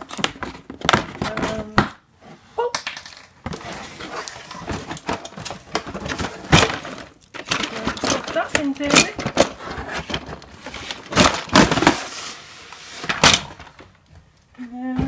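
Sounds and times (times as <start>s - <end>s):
plastic toy handled: 2.7s - 14.0s.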